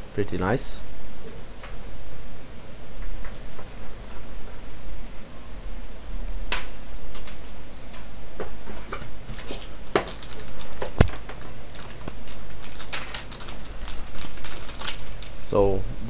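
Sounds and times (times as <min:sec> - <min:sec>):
plastic bag crinkling: 0:06.6 - 0:07.7, 0:09.0 - 0:15.6.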